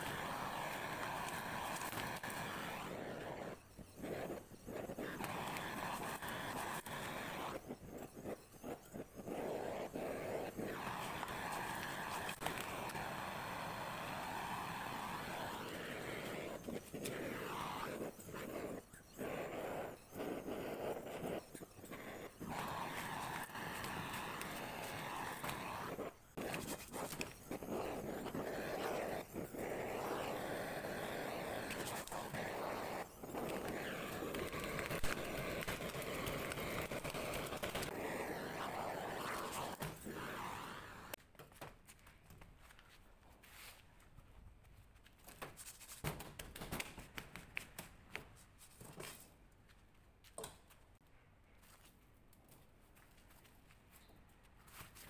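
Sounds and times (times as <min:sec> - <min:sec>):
hissing torch flame: 0:00.0 - 0:41.2.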